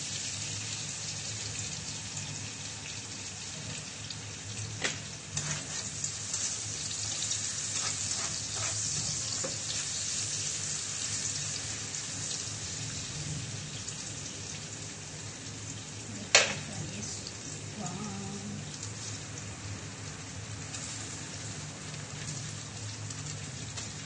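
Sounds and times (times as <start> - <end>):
prawns sizzling in oil: 0.0 - 24.0
spatula scraping a pan: 5.4 - 10.1.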